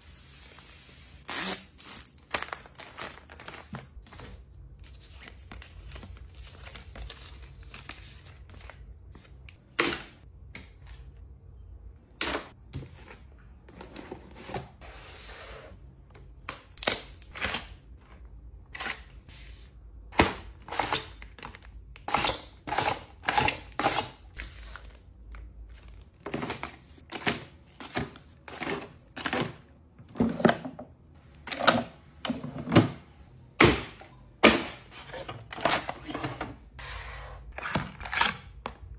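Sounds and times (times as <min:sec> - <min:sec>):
plastic packets crinkling: 0:02.1 - 0:04.1.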